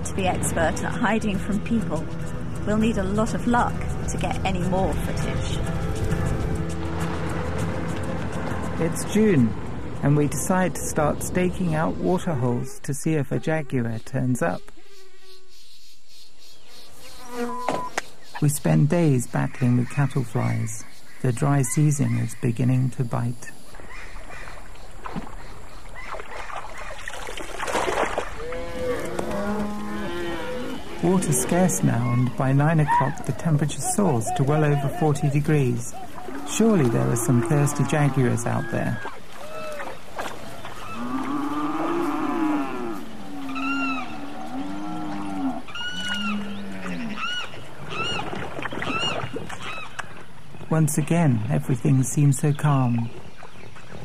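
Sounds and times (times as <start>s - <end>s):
cattle mooing: 28.4s - 33.3s, 34.1s - 40.0s, 40.8s - 47.4s.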